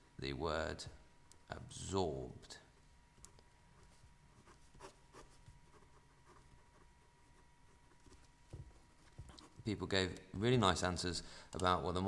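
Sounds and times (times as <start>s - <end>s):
pen scratching on paper: 3.8s - 8.3s, 9.2s - 9.7s.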